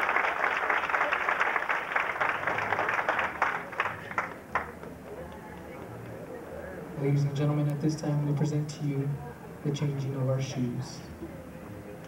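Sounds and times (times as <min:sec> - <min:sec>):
people clapping: 0:00.0 - 0:06.4.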